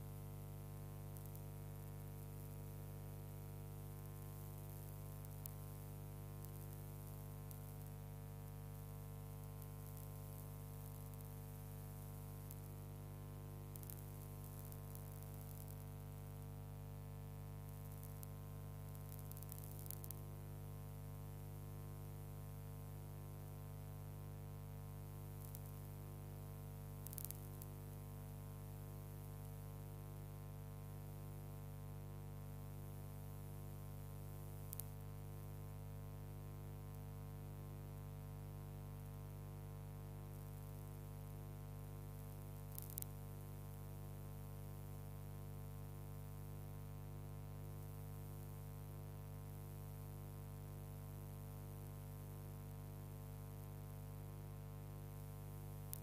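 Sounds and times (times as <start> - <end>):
electrical hum with hiss: 0.0 - 56.0
faint crackles: 4.1 - 12.8, 13.6 - 20.4, 25.3 - 26.3, 26.9 - 30.5, 34.3 - 35.0, 42.2 - 43.3.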